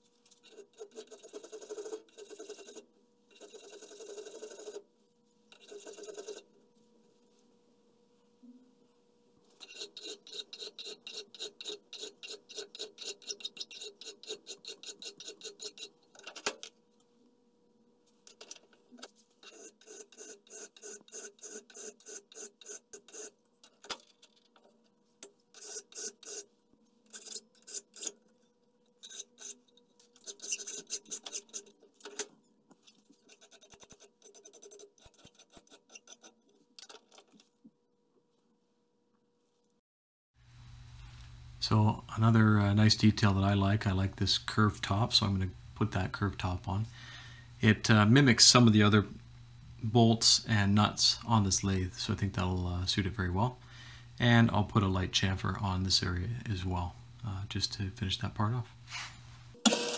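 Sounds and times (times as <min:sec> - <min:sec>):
hand file stroking steel: 0:00.4 - 0:04.8, 0:05.6 - 0:06.5, 0:09.6 - 0:16.0, 0:19.4 - 0:23.4, 0:25.5 - 0:26.5, 0:29.0 - 0:31.8, 0:33.3 - 0:36.4.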